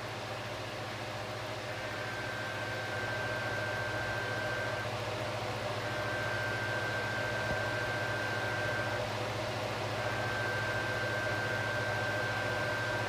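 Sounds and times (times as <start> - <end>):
high-pitched whine: 1.8 - 4.9.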